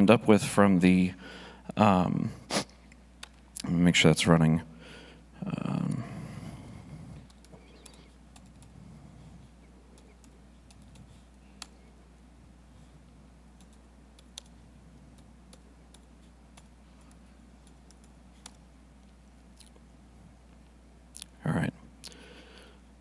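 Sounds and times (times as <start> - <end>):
low hum: 0.0 - 21.0
laptop keyboard typing: 7.2 - 8.7, 9.9 - 11.8, 13.6 - 18.6.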